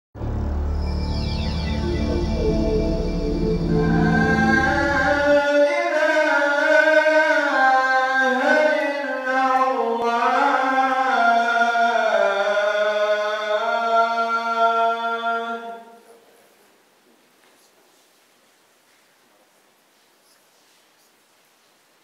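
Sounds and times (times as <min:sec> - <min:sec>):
deep intro music: 0:00.2 - 0:05.5
solo voice singing a chant: 0:03.6 - 0:16.0.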